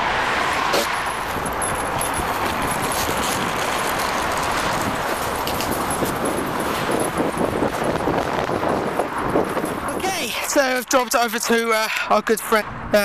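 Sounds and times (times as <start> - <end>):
bicycle tyres on path: 0.0 - 11.6
wind on microphone: 0.7 - 10.3
bicycle rattles and clicks: 0.7 - 12.0.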